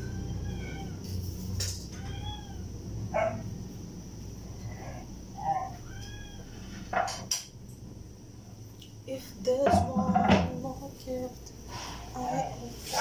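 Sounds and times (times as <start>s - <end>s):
cat meowing: 0.0s - 1.1s, 1.9s - 2.7s, 5.4s - 6.7s.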